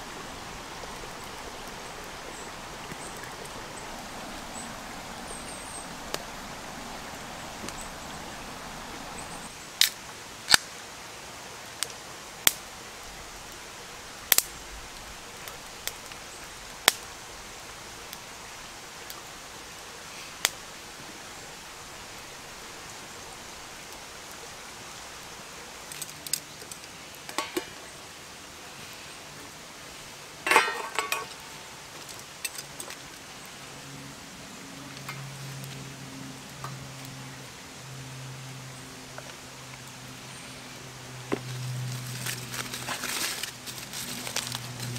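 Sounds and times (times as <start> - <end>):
campfire crackling and popping: 0.0 - 10.7, 11.7 - 19.3, 20.4 - 24.5, 25.2 - 27.9, 41.2 - 44.9
low fire hiss: 0.0 - 44.9.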